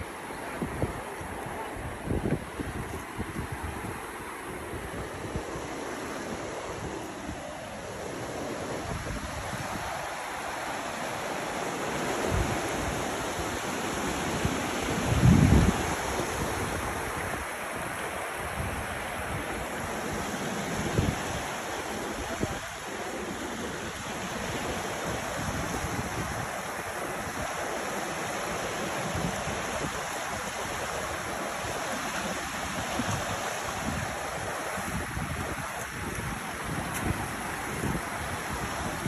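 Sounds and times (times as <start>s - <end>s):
river rushing: 0.0s - 39.0s.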